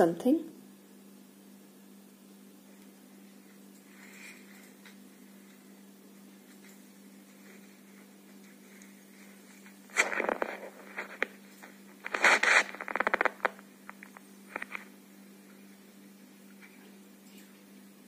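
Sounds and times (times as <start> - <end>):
faint steady hum: 0.0 - 18.0
scratchy rustling: 6.5 - 14.8.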